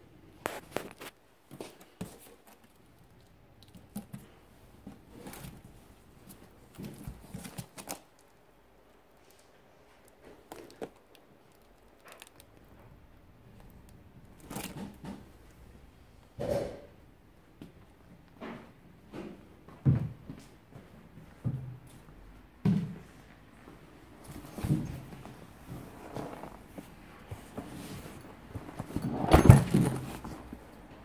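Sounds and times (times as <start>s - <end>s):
cardboard and plastic handled: 0.4s - 8.4s, 9.2s - 12.9s, 13.5s - 15.3s, 24.2s - 30.8s.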